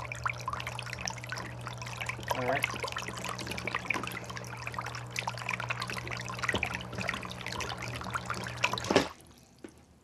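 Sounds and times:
water splashing and churning: 0.0s - 9.3s
low motor hum: 0.0s - 10.0s.

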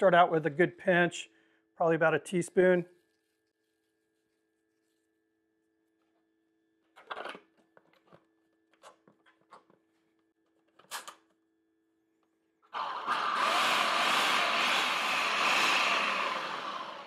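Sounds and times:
food processor motor running: 12.7s - 17.0s.

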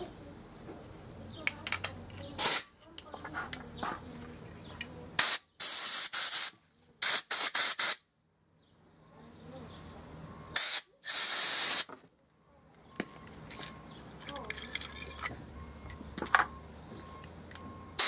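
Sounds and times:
compressed air blasts hissing: 2.4s - 2.7s, 5.2s - 8.1s, 10.6s - 11.9s.

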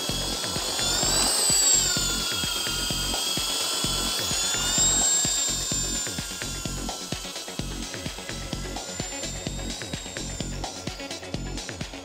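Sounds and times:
rc helicopter motor whine: 0.0s - 12.0s.

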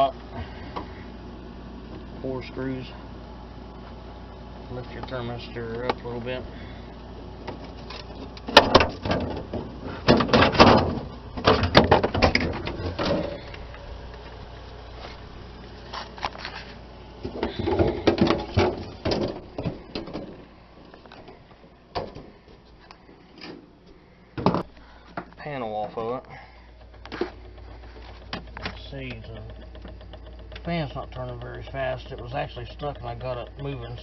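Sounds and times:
plastic panel rattling and scraping: 7.5s - 13.8s, 15.8s - 21.4s, 26.8s - 34.0s.

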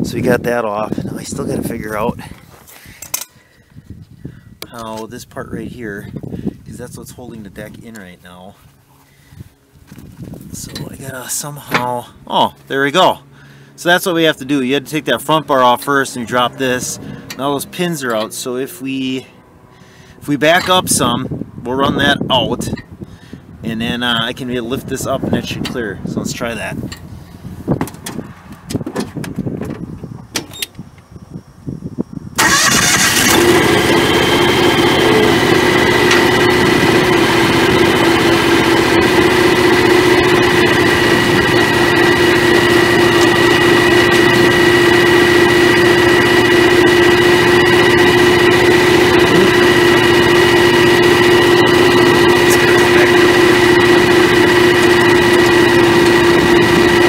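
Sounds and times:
high whine: 9.9s - 27.4s, 33.1s - 57.0s
lawn tractor engine running: 10.6s - 21.0s, 32.4s - 57.0s.

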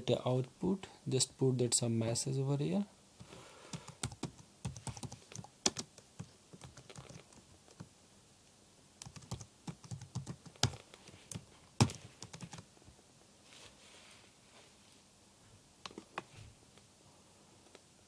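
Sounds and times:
typing on keyboard: 3.7s - 7.9s, 9.0s - 12.6s.

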